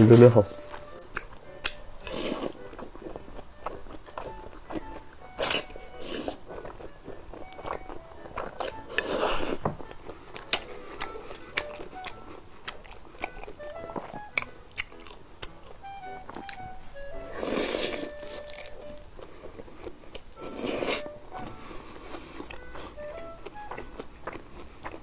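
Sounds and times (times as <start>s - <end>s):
noodle slurping: 2.0s - 2.7s, 17.2s - 23.3s.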